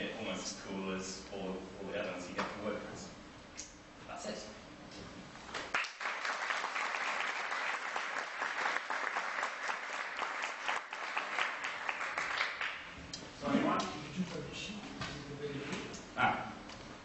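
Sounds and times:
audience applauding: 5.7 - 12.9.

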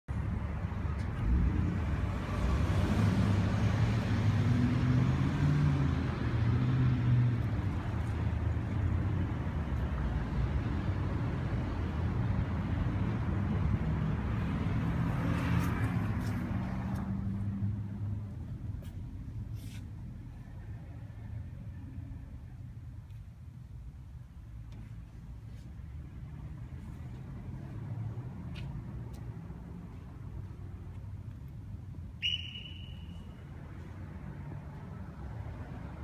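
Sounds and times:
road traffic: 0.1 - 36.0.

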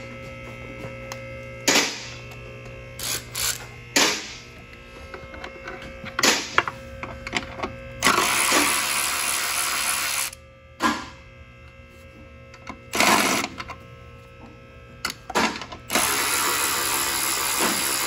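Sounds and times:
electric ratchet whirring: 2.9 - 10.4, 12.6 - 13.8, 15.1 - 18.0.

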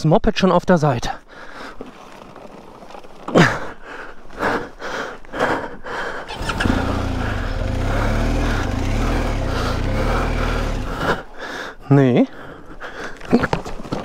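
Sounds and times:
knocks and scrapes of motorcycle: 6.3 - 11.3
motorcycle engine starting and idling: 6.3 - 11.4.

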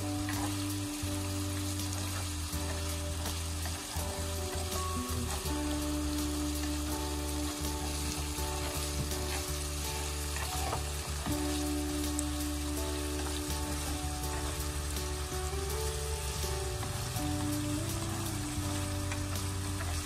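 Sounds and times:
chopsticks against pan: 0.0 - 20.0
tofu sizzling in oil: 0.0 - 20.0.

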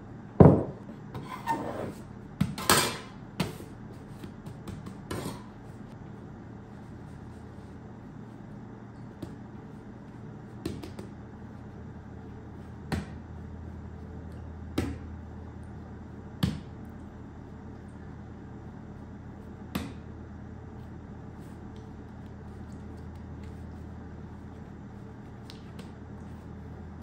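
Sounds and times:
steady low hum: 0.0 - 27.0
hands slapping dough on wood: 4.2 - 5.2, 10.6 - 11.2, 12.8 - 13.4, 14.7 - 15.2, 16.4 - 16.8, 19.7 - 20.1, 25.4 - 26.0.

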